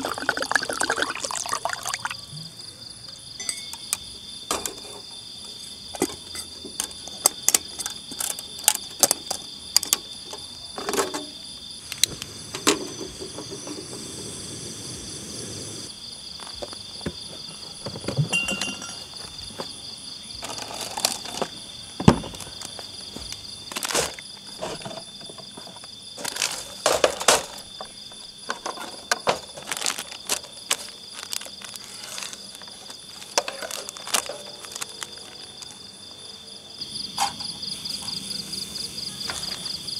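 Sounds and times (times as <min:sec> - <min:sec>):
crickets trilling: 0:00.0 - 0:39.9
camp gear clattering: 0:05.9 - 0:11.4, 0:16.4 - 0:19.8, 0:20.4 - 0:36.0.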